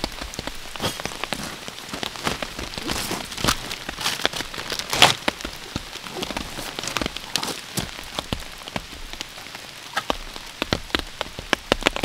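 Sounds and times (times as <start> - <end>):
rain pattering: 0.0 - 12.0
plastic bag crinkling: 0.8 - 5.2.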